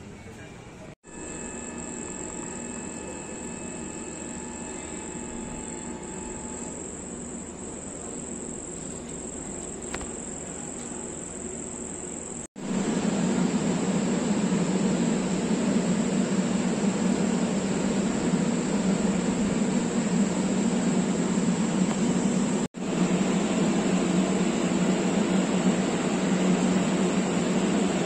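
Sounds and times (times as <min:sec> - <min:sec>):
low rumble of standing train: 0:00.0 - 0:28.0
night insects trilling: 0:01.1 - 0:12.5.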